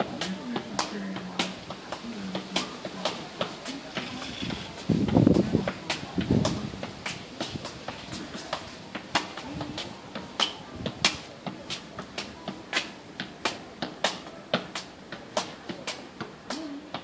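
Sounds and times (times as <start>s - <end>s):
tennis ball tapping on feet: 0.0s - 17.0s.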